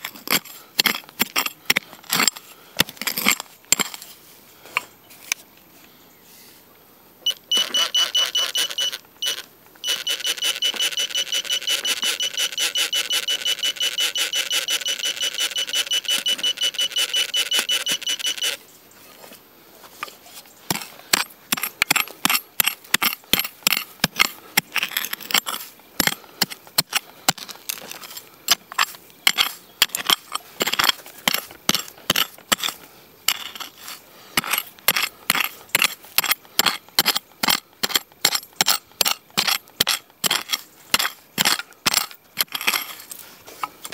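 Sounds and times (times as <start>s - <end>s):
hand tool digging in soil: 0.0s - 5.5s, 14.0s - 43.9s
metal detector pulsing beep: 7.2s - 18.6s.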